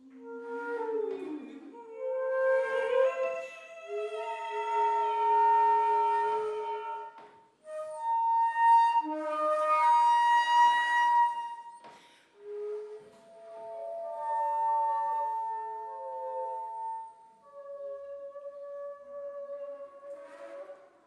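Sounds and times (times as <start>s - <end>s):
woman singing long notes: 0.0s - 7.3s
flute holding long notes: 0.0s - 21.0s.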